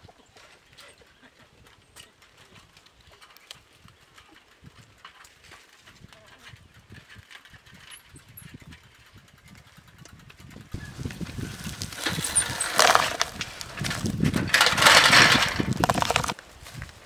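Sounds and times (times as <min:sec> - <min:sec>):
bicycle rattling over dirt: 0:00.2 - 0:17.0
bicycle clattering onto ground: 0:11.0 - 0:16.4.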